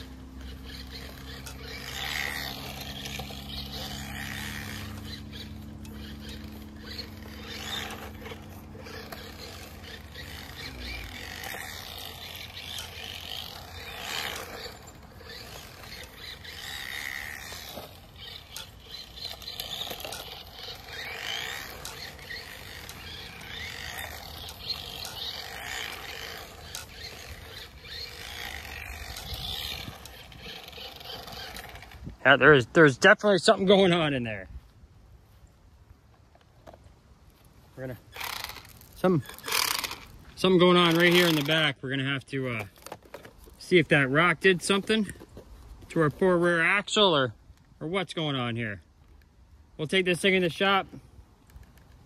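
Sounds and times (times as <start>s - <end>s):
scattered clicks: 0.0s - 32.0s
electric toy car motor whine: 0.0s - 32.1s, 38.0s - 41.6s.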